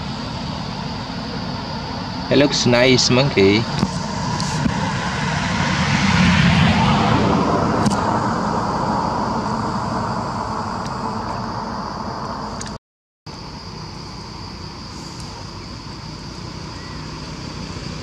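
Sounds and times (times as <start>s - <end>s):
passing vehicle engine: 0.0s - 12.7s.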